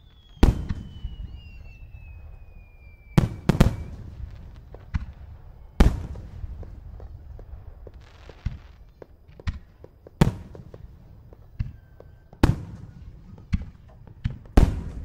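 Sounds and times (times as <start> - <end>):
firework shells booming: 0.0 - 15.0
smaller firework bangs: 0.0 - 15.0.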